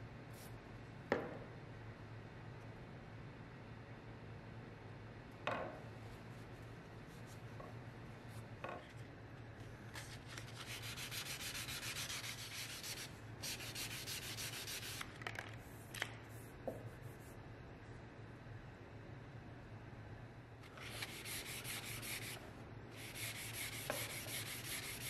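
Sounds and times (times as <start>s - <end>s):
sanding block rubbing wood: 10.5s - 15.0s, 21.0s - 22.4s, 23.0s - 25.0s.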